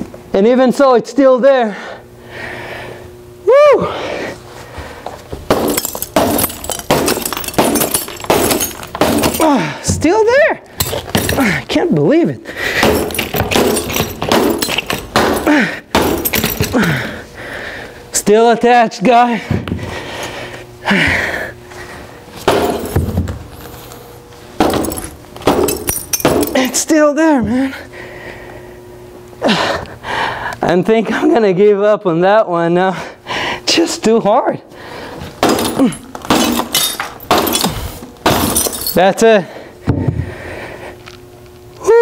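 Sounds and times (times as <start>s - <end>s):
hammer striking cracked glass: 5.5s - 9.6s, 12.8s - 16.8s, 24.6s - 26.8s, 35.4s - 39.0s.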